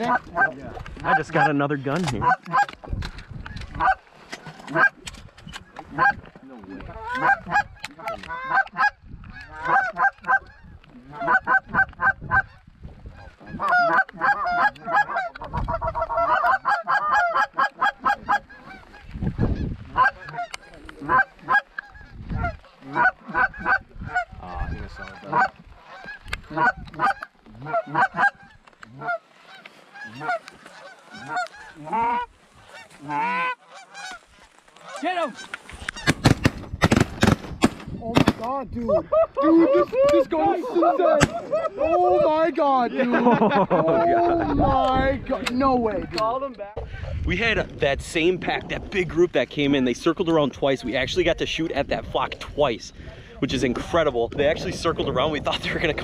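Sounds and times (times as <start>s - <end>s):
geese honking: 0.0s - 2.9s, 3.5s - 5.0s, 5.7s - 37.0s
clucking calls: 0.0s - 47.3s.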